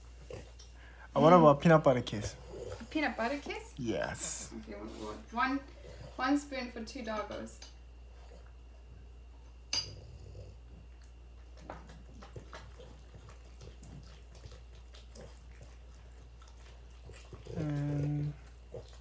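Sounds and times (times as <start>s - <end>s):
spoon clinking against dish: 9.7s - 10.0s
dogs licking and lapping: 10.6s - 19.0s.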